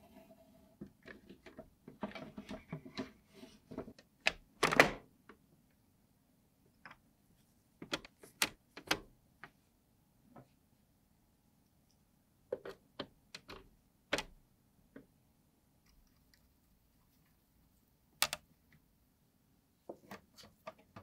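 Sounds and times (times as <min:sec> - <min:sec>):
plastic parts knocking and scraping: 0:00.0 - 0:05.5, 0:07.8 - 0:09.6, 0:12.5 - 0:15.1, 0:19.9 - 0:21.0
knobs clicking onto shafts: 0:18.2 - 0:18.5.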